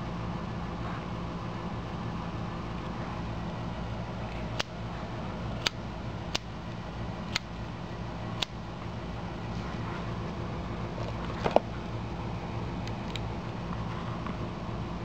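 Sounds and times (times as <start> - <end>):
steady low hum: 0.0 - 15.0
small sharp plastic clicks: 7.3 - 7.5, 8.4 - 8.6.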